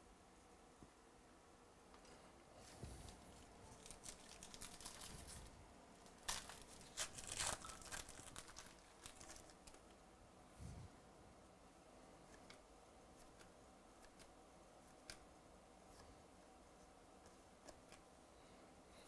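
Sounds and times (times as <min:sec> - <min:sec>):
wrapper tearing and crinkling: 0:03.7 - 0:05.5, 0:06.1 - 0:09.8.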